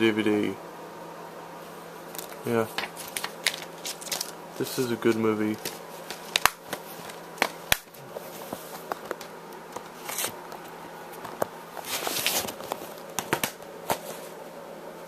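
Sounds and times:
rustling: 1.7 - 14.5
plastic cases clicking and tapping: 5.6 - 8.0, 8.8 - 10.6, 12.5 - 14.0.

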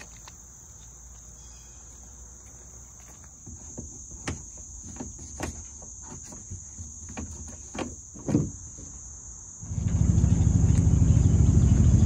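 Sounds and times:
crickets chirping: 0.0 - 12.0
knocks and clunks: 3.0 - 9.0.

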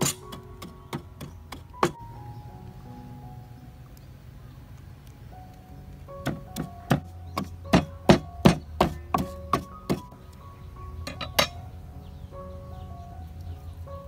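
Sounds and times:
wooden pestle pounding in mortar: 6.2 - 10.2.

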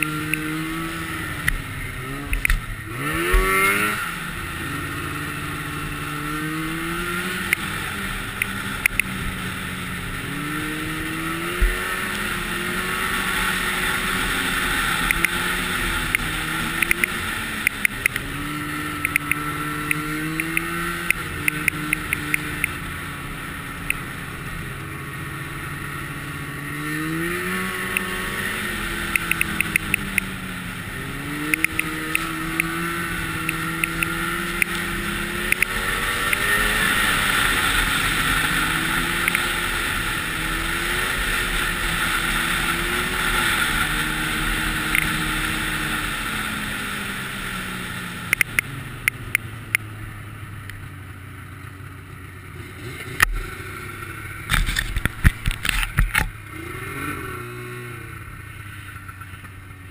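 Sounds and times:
sharp clicks: 0.0 - 0.5, 2.3 - 2.6, 8.3 - 9.1, 15.0 - 15.4, 16.1 - 18.3, 19.0 - 22.8, 29.1 - 30.3, 31.5 - 32.8, 33.4 - 34.8, 35.4 - 36.5, 39.2 - 39.5, 44.9 - 45.2, 48.3 - 49.9
snowmobile engine revving: 0.0 - 49.8, 52.6 - 59.0
steady rushing noise: 0.0 - 50.9.

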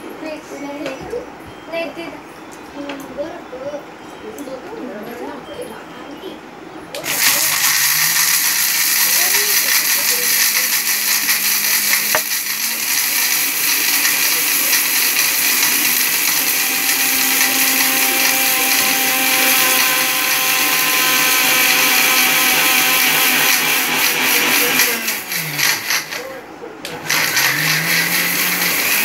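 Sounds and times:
mixer grinder motor running: 7.0 - 26.3, 26.9 - 29.0.

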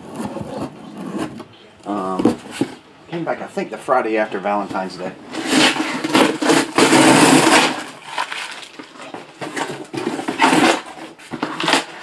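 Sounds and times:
rustling crinkling handling noise: 7.5 - 12.0.

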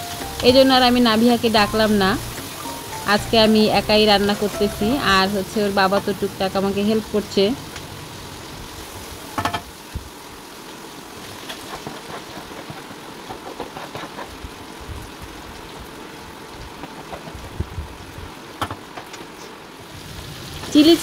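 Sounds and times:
frying hiss: 0.0 - 21.0
wooden spatula scraping in a wok: 11.4 - 14.4.

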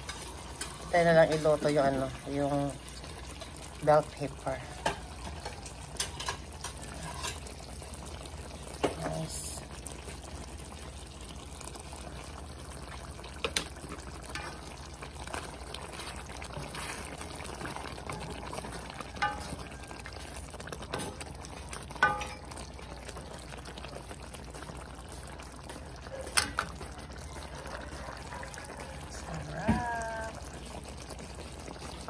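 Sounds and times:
thick sauce bubbling: 0.0 - 32.0
spatula tapping a pan: 19.2 - 19.6, 22.0 - 22.4.

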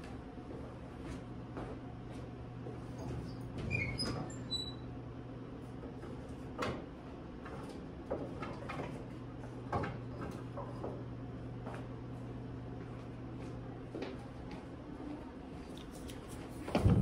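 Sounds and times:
knocks and clatter in cupboards: 16.7 - 17.0.

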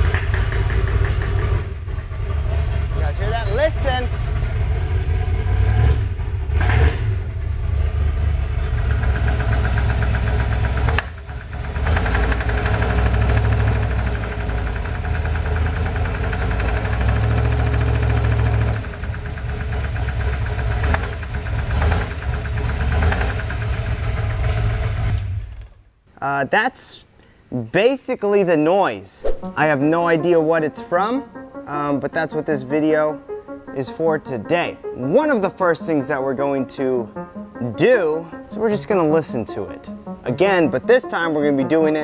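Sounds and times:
engine knock: 0.0 - 3.0, 7.7 - 25.1
car engine revving: 0.0 - 25.4.

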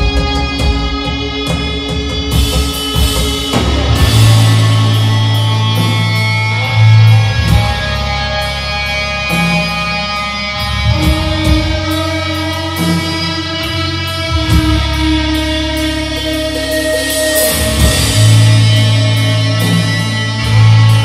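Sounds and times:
slow heavy metal band playing: 0.0 - 21.0
deep loud bass note: 3.5 - 8.6.

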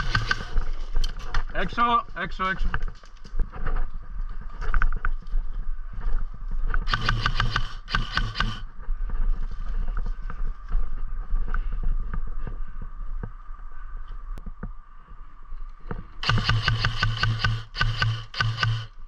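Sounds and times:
airsoft gun full-auto bursts: 0.0 - 0.6, 6.9 - 8.6, 16.2 - 19.0
gun motor hum: 0.0 - 0.6, 6.8 - 8.6, 16.2 - 19.0
rustling through dry brush: 0.0 - 1.6, 2.6 - 14.3.

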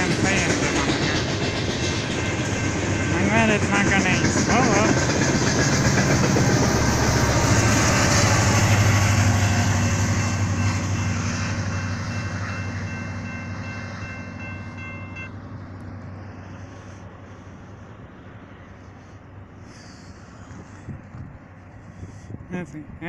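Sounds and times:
train rumbling on rails: 0.0 - 23.0
high ringing tone: 9.4 - 15.4.

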